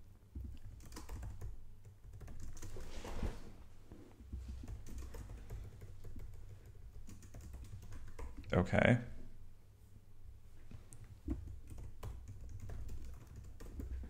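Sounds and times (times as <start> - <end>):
typing on keyboard: 0.4 - 2.9, 4.5 - 8.5, 10.9 - 14.0.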